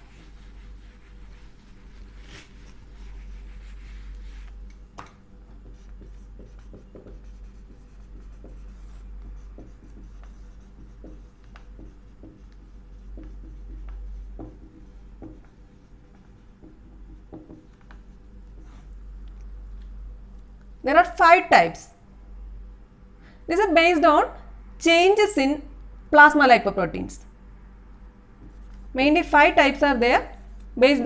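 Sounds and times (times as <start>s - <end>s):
marker pen writing on whiteboard: 0.0s - 4.7s, 5.4s - 19.0s
steady low hum: 0.0s - 31.0s.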